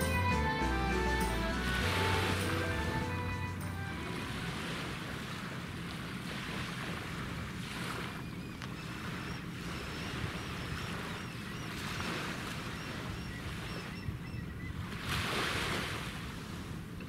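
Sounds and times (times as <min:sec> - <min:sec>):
ship engines rumbling: 0:00.0 - 0:10.8
wind and water hiss: 0:01.4 - 0:17.0.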